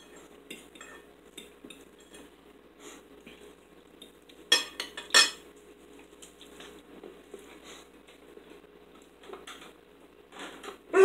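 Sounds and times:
forks clinking on plates: 0.0 - 2.2, 4.5 - 5.4.

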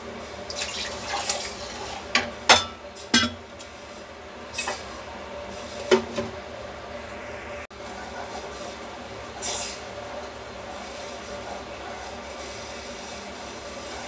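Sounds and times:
kitchen utensils clinking: 0.6 - 3.5.

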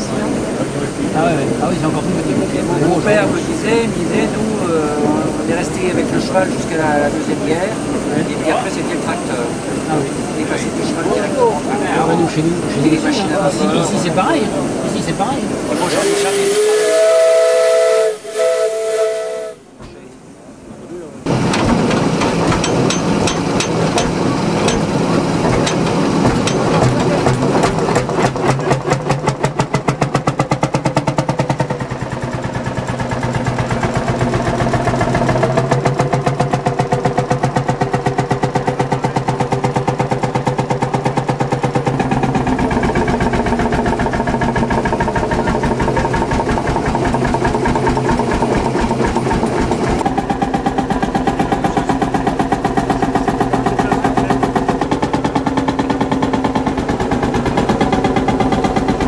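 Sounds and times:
tractor engine running: 21.3 - 59.0.

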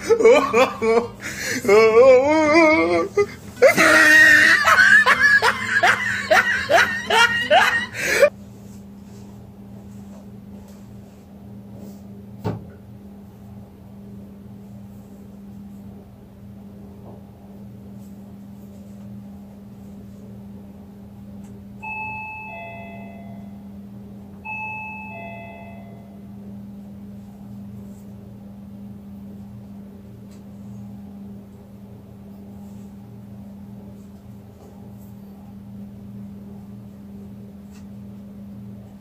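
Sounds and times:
steady low hum: 0.0 - 39.0
two-tone doorbell chime: 21.8 - 23.8, 24.4 - 26.4.

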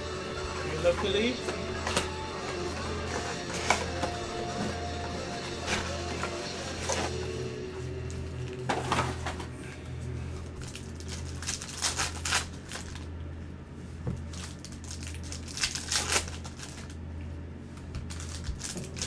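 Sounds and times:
foil wrappers crinkling and tearing: 10.4 - 13.1, 14.2 - 17.0, 17.9 - 19.0.

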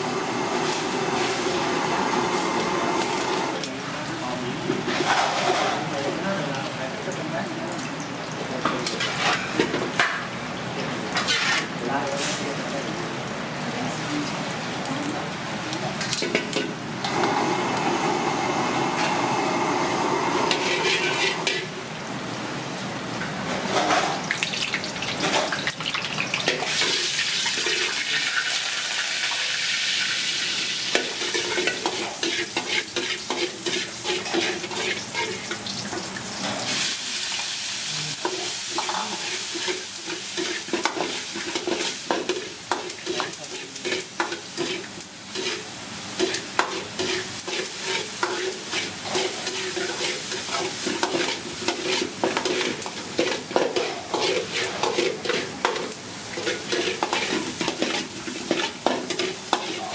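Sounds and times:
oil sizzling in a wok: 0.0 - 59.9
metal spatula scraping a wok: 11.2 - 11.7, 20.5 - 21.7, 31.0 - 35.5, 38.2 - 59.9.

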